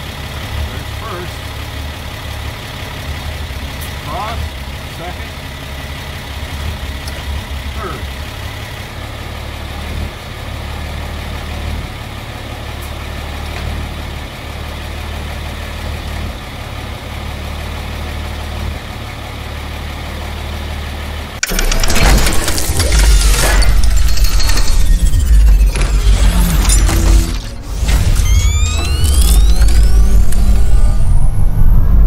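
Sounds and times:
engine idling: 0.0s - 23.6s
crash: 21.4s - 32.0s
loud intro music: 21.4s - 32.0s.

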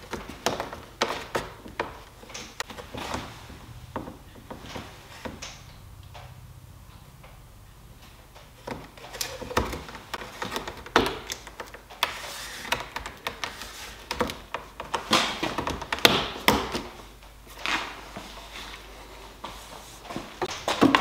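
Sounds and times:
wooden strip tapping and scraping wood: 0.0s - 6.3s, 8.0s - 17.0s.

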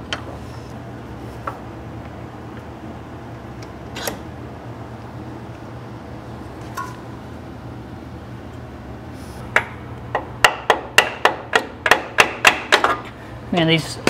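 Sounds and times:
dehumidifier humming: 0.0s - 14.0s
hammer striking steel frame: 9.6s - 13.0s.

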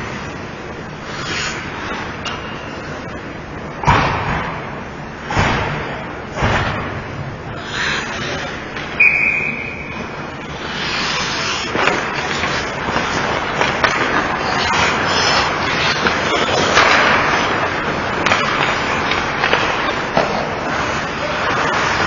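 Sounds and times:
skates scraping on ice: 1.0s - 2.1s, 10.4s - 22.0s
referee's whistle blast: 9.0s - 9.9s.

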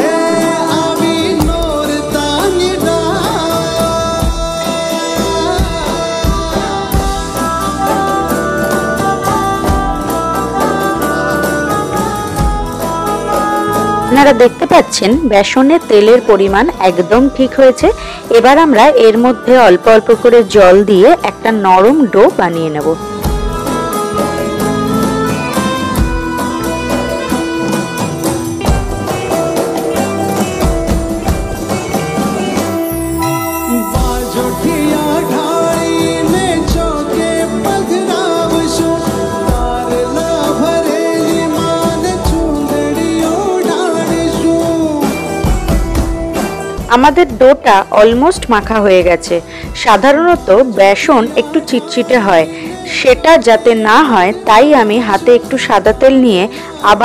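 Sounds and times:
drum beat: 0.0s - 14.2s, 23.0s - 33.1s, 33.7s - 50.6s
melodic instrument lines: 0.0s - 57.0s.

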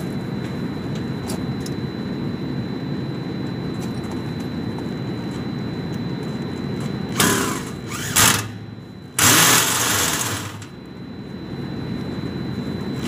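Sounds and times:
power drill driving screws into metal: 7.2s - 8.6s, 9.2s - 10.7s.

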